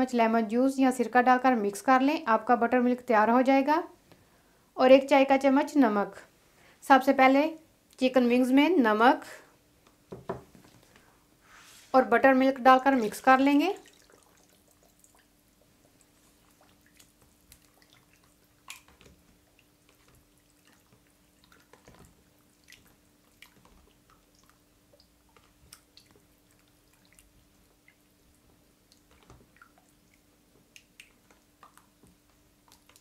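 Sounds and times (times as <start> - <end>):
faint steady hum: 0.0 - 33.0
wet squelches of hand mixing: 11.5 - 33.0.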